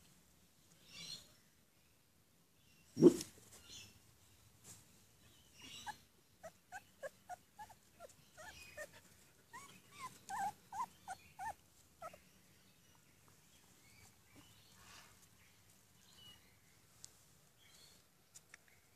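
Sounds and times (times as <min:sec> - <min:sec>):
puppies whimpering: 0:05.8 - 0:12.2.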